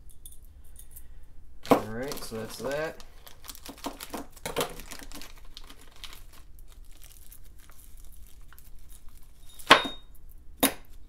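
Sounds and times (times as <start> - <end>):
plastic bags crinkling: 1.6 - 9.7.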